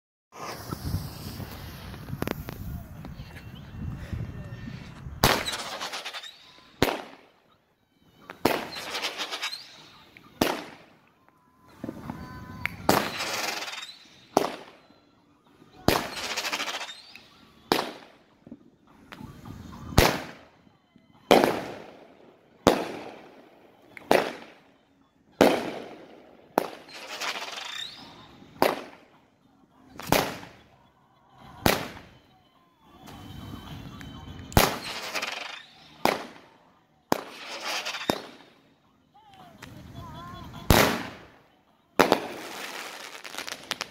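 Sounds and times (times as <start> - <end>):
firework bangs: 0.4 - 2.7, 5.2 - 7.3, 8.3 - 10.9, 11.8 - 14.9, 15.9 - 18.1, 19.9 - 20.4, 21.2 - 22.0, 22.6 - 24.6, 25.4 - 29.0, 30.0 - 30.6, 31.6 - 32.2, 34.5 - 36.4, 37.1 - 38.5, 40.6 - 41.3, 42.0 - 43.9
firework crackle: 0.4 - 3.4, 5.0 - 7.3, 8.3 - 11.0, 11.7 - 14.9, 15.7 - 18.2, 25.4 - 29.1, 29.8 - 30.7, 31.4 - 32.2, 33.0 - 36.5, 37.1 - 38.6, 39.5 - 43.9.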